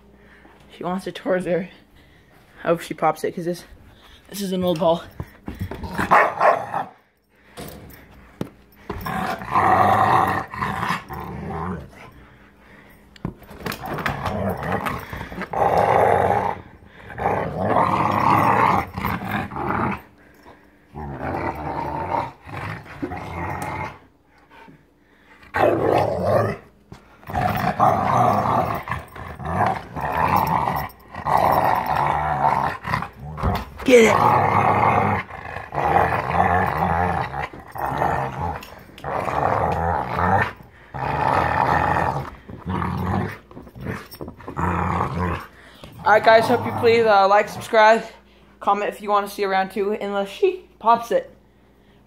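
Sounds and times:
dog growling: 8.8 - 12.8, 13.7 - 24.1, 25.4 - 48.1.

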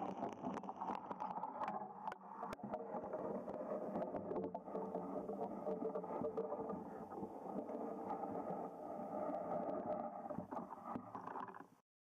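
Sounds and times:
murky underwater rumble: 0.0 - 11.8.

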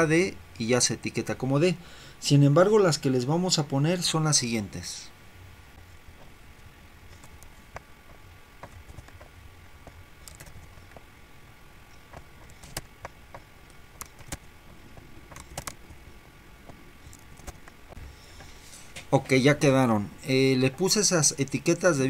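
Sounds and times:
faint steady hum: 0.0 - 22.0
keyboard typing: 7.1 - 11.0, 11.9 - 16.0, 16.6 - 17.7
mouse clicking: 7.1 - 11.1, 11.9 - 16.0.

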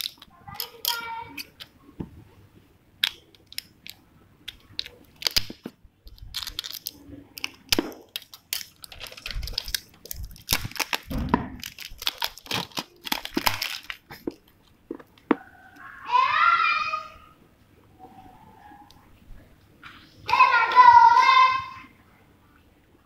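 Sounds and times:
plastic shrink-wrap crinkling: 0.0 - 1.5, 3.0 - 15.3.

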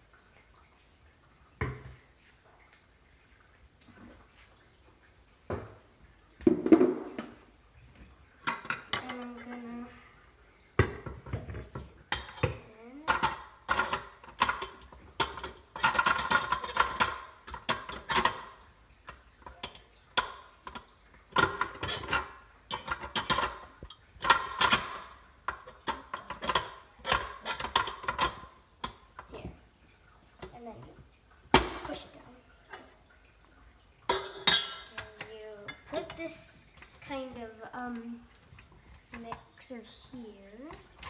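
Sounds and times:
mixer parts clattering and knocking: 6.4 - 7.4, 10.8 - 29.6, 34.1 - 39.4.

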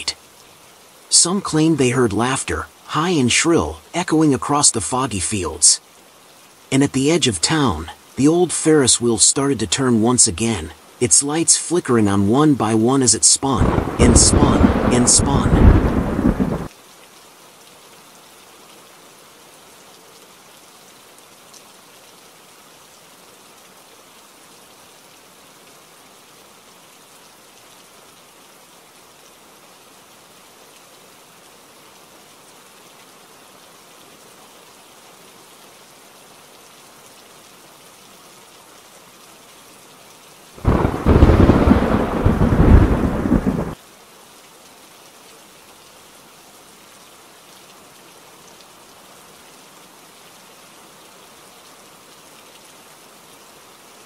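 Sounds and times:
rain hiss: 0.0 - 54.0
thunder crash: 13.6 - 16.7, 40.6 - 43.8.

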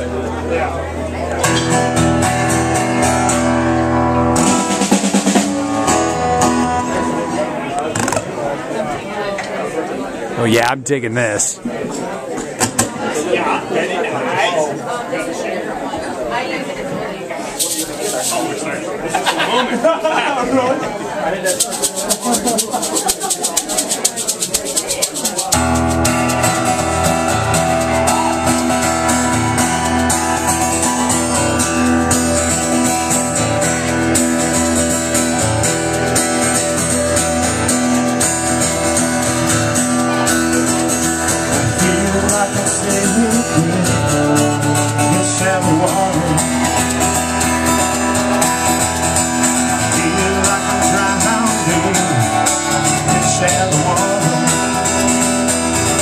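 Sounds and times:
strummed acoustic guitar: 0.0 - 8.8, 20.4 - 56.0
live band playing: 1.4 - 8.4, 17.6 - 18.7, 21.4 - 56.0
drum kit: 4.2 - 7.3.

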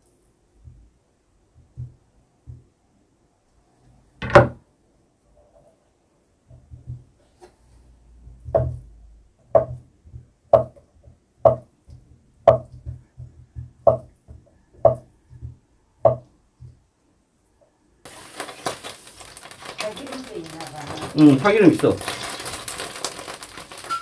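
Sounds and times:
knife chopping on wooden board: 9.5 - 10.8, 11.4 - 16.8.

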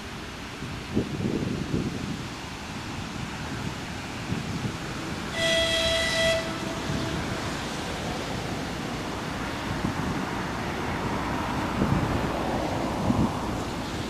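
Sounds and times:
wind buffeting microphone: 0.0 - 14.0
electric train running: 4.1 - 14.0
train horn: 5.3 - 8.0.

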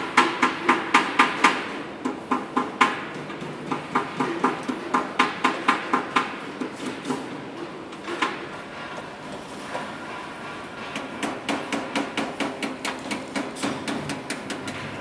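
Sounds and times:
hammer striking sheet metal: 8.0 - 15.0.

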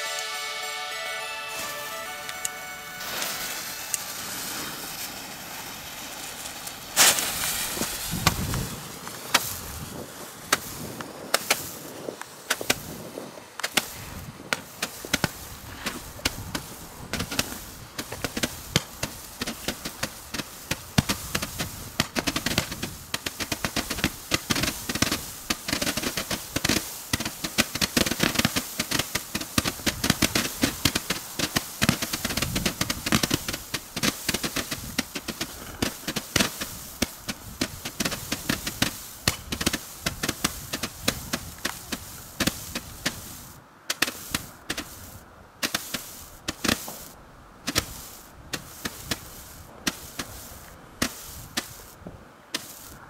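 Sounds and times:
fireworks popping: 1.2 - 53.0.

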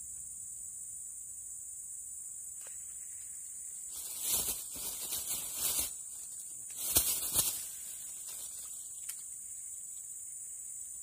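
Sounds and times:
insects droning: 0.0 - 11.0
rustling and scraping: 2.6 - 9.3.

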